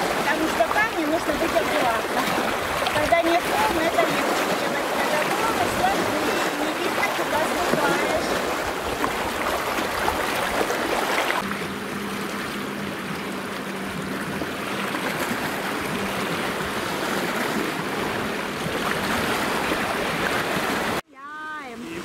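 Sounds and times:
sea waves splashing on rocks: 0.0 - 11.5
low steady hum: 0.0 - 20.2.

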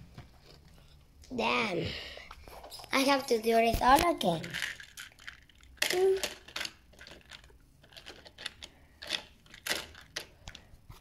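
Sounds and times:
plastic track pieces clicking: 4.4 - 10.6.

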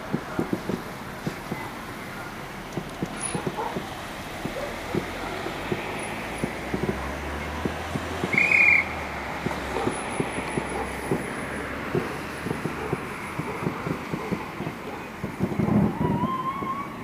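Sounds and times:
steady hiss: 0.0 - 16.0
fireworks bangs and pops: 0.0 - 17.0
short high whistle: 8.3 - 8.9.

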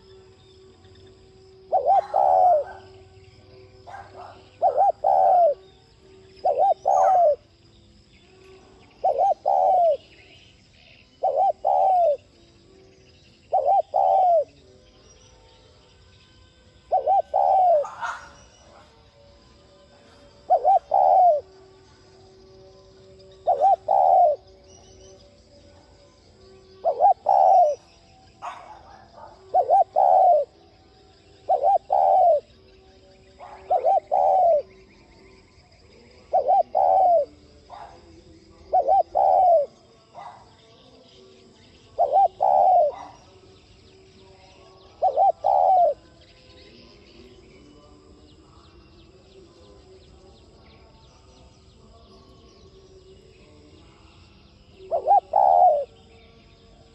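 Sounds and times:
dove cooing: 1.6 - 7.5, 8.8 - 12.4, 13.4 - 14.7, 16.8 - 19.1, 20.0 - 22.1, 23.2 - 24.9, 26.6 - 40.6, 41.4 - 43.4, 44.5 - 46.1, 54.8 - 56.0.

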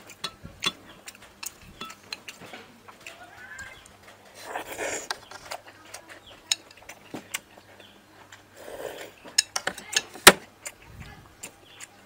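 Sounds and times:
metal spoon clinking on bowl: 0.1 - 0.8, 1.4 - 2.3.

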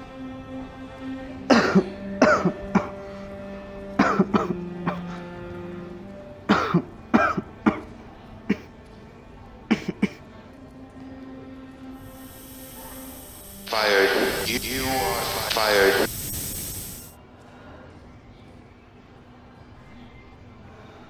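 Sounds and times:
soft background music: 0.0 - 16.1, 16.8 - 21.0
man coughing: 1.5 - 3.0, 4.0 - 4.6.

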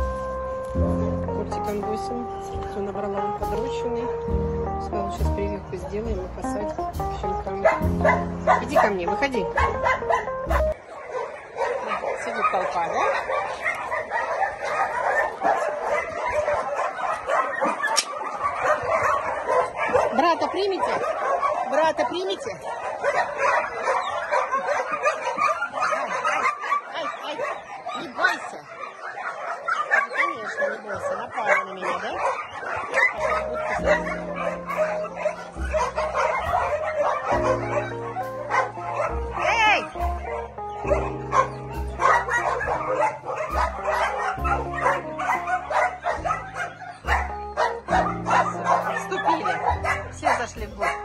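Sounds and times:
background music with bass line: 0.0 - 10.8, 33.1 - 51.0
puppies calling: 0.0 - 51.0.

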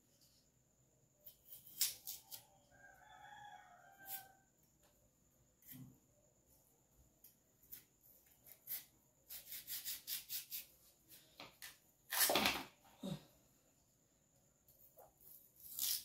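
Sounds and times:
knife cutting raw yam: 1.2 - 2.7, 3.8 - 4.4, 7.2 - 10.7, 14.9 - 16.0.

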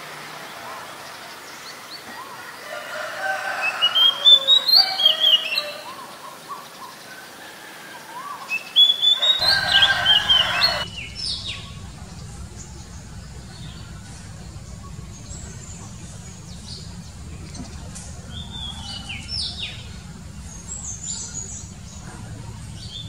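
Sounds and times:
bird singing whistled notes: 8.5 - 22.1.

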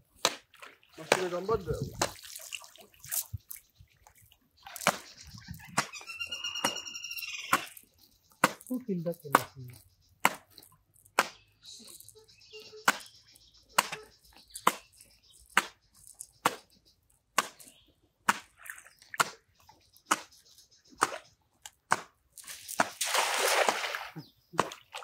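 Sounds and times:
cast net splashing on water: 0.1 - 3.6, 18.2 - 19.5, 21.0 - 25.0.

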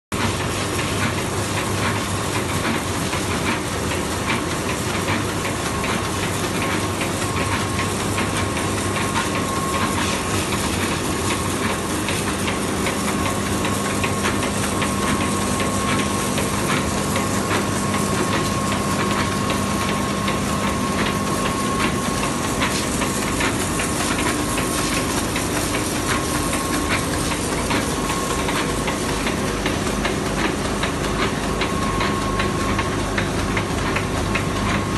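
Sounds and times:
label printing press running: 0.1 - 34.9.

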